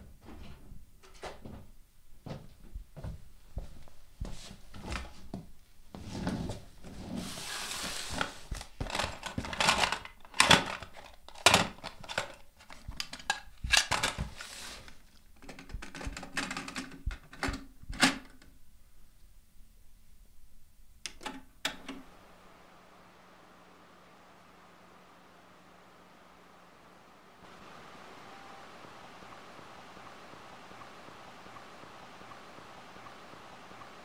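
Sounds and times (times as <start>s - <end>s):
burst of hiss: 7.2s - 8.5s, 14.3s - 15.0s
clicks knocks and clatter: 15.4s - 18.5s.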